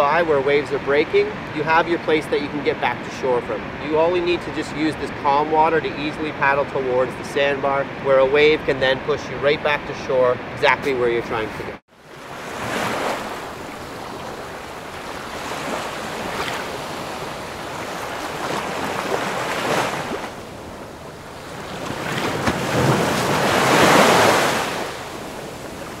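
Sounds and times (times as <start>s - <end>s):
ocean surf breaking on beach: 12.0s - 26.0s.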